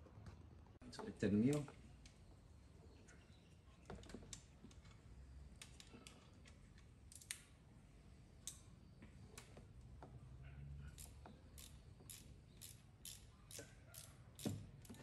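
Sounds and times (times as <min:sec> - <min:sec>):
hand wrench metallic clicks: 0:05.6 - 0:07.5, 0:10.9 - 0:15.0.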